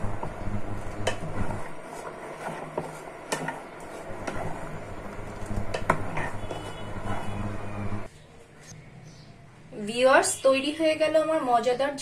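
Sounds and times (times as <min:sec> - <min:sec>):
spoon stirring in saucepan: 0:00.0 - 0:08.1
cooktop electrical hum: 0:00.0 - 0:12.0.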